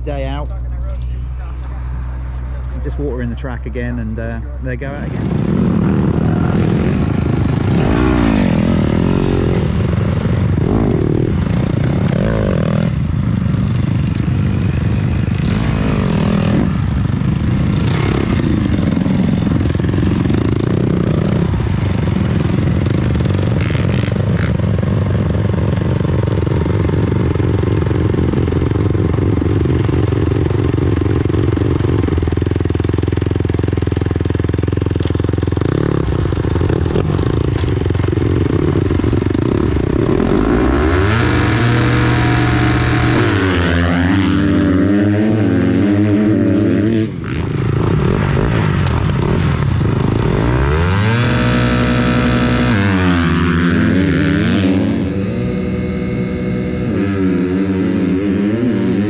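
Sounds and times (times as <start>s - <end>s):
motocross bike engines revving: 0.0s - 59.0s.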